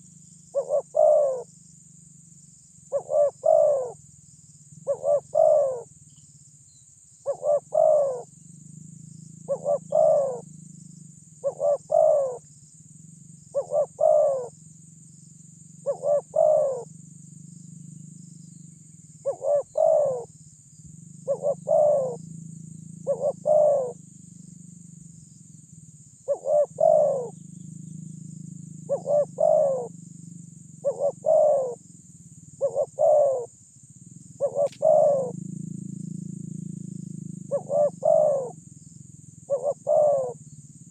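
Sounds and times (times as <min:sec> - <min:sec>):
dove cooing: 0:00.0 - 0:01.5, 0:02.9 - 0:04.0, 0:04.8 - 0:05.9, 0:07.2 - 0:08.3, 0:09.4 - 0:10.5, 0:11.4 - 0:12.5, 0:13.5 - 0:14.6, 0:15.8 - 0:16.9, 0:19.2 - 0:20.4, 0:21.2 - 0:22.2, 0:23.0 - 0:24.0, 0:26.2 - 0:27.5, 0:28.8 - 0:29.9, 0:30.8 - 0:31.8, 0:32.6 - 0:33.5, 0:34.4 - 0:35.4, 0:37.4 - 0:38.6, 0:39.4 - 0:40.9
steady low hum: 0:00.0 - 0:40.9.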